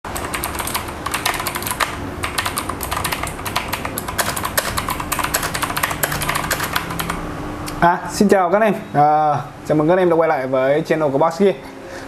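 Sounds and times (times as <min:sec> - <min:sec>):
mechanical keyboard typing: 0:00.1 - 0:07.2.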